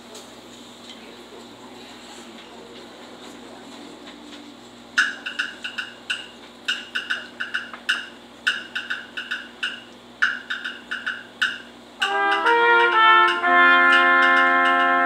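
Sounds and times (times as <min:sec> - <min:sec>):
percussion hits: 0:05.0 - 0:15.0
brass and woodwind chords: 0:12.0 - 0:15.0.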